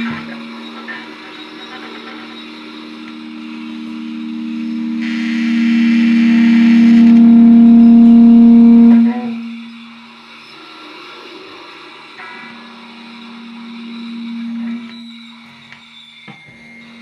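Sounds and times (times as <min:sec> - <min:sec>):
guitar feedback tone: 0:00.0 - 0:10.2, 0:12.2 - 0:15.8.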